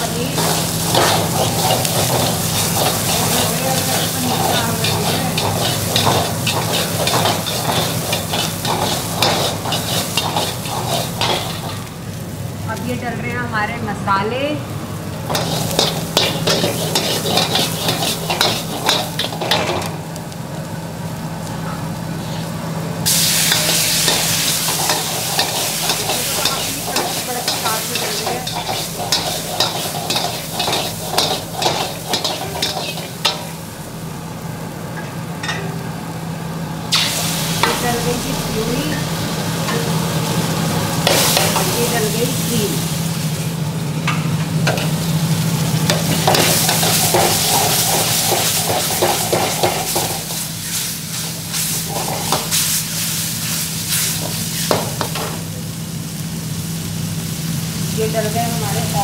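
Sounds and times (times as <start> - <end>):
spices sizzling: 0.0 - 59.0
ladle scraping a wok: 0.3 - 11.9, 15.3 - 19.9, 23.1 - 33.5, 45.9 - 52.8.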